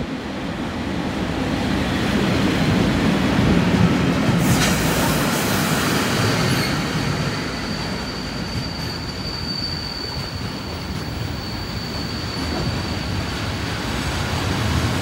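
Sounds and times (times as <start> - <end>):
train wheels rumbling on rail: 0.0 - 15.0
high-pitched wheel squeal: 6.2 - 13.6.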